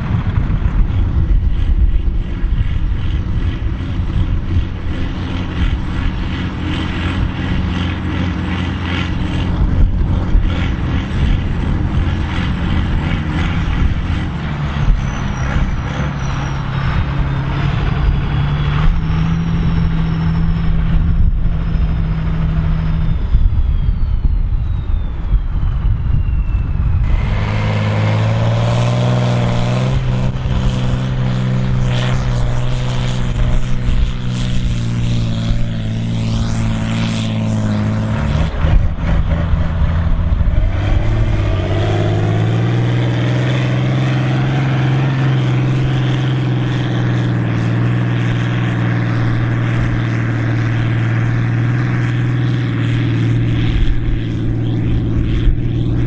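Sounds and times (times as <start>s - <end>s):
tractor diesel engine running hard: 0.0s - 56.0s
turbo whine: 0.0s - 56.0s
high whistle: 18.3s - 27.3s.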